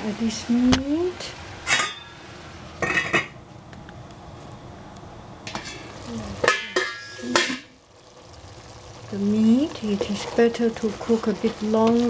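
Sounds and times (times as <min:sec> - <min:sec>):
metal lid clanking on pot: 0:01.6 - 0:02.2, 0:02.8 - 0:03.4, 0:05.5 - 0:07.7
meat sizzling in a pot: 0:05.4 - 0:12.0.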